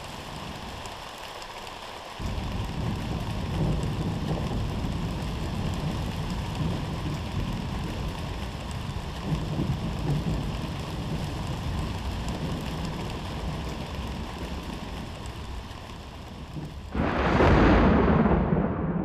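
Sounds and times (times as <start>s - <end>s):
low rumbling noise: 16.8s - 19.0s
loud boom with rumbling tail: 16.9s - 19.0s.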